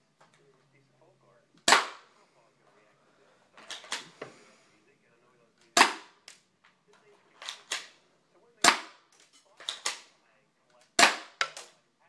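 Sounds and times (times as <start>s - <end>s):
airsoft pistol shots: 1.6s - 2.1s, 5.7s - 6.2s, 8.6s - 9.1s, 11.0s - 11.7s.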